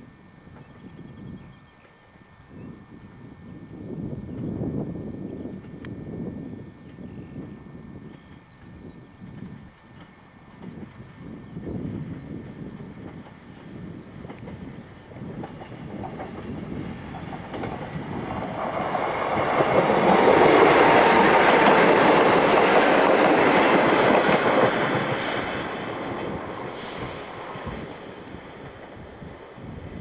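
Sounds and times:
diesel train passing: 0:09.8 - 0:30.0.

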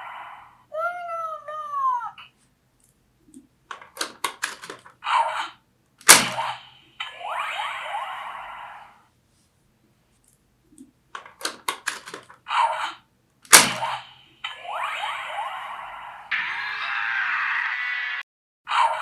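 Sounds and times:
sharp plastic clicks: 0:02.8 - 0:05.0, 0:10.2 - 0:12.4.

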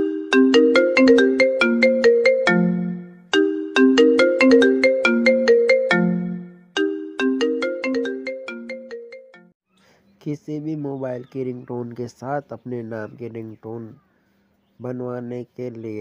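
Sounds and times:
mobile phone ringtone melody: 0:00.0 - 0:09.6.

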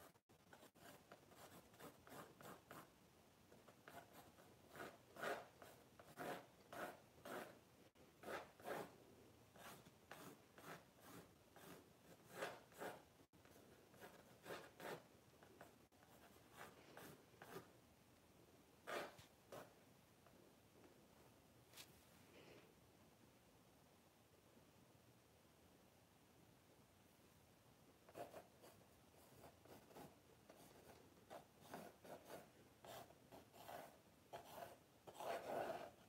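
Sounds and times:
pencil scratching on board: 0:00.0 - 0:02.9, 0:03.5 - 0:07.6, 0:08.2 - 0:08.9, 0:09.6 - 0:17.7, 0:18.8 - 0:19.7, 0:28.1 - 0:36.0.

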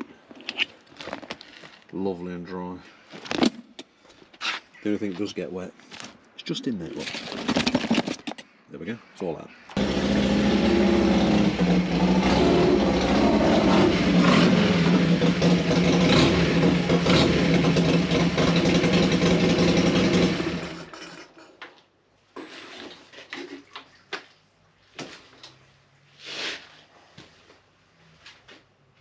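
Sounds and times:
motorcycle engine at low speed: 0:09.8 - 0:21.1.

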